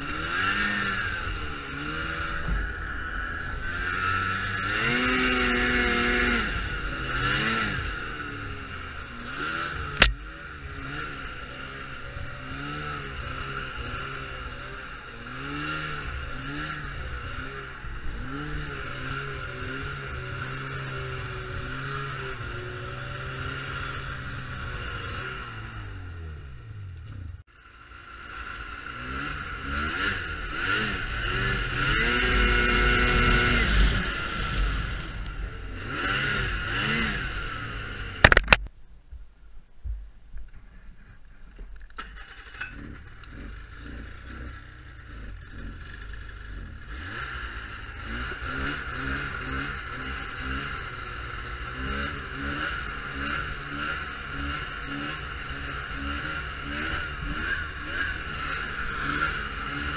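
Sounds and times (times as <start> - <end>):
snowmobile engine revving: 0.0 - 38.4, 42.2 - 59.9
sharp click: 38.2 - 38.7.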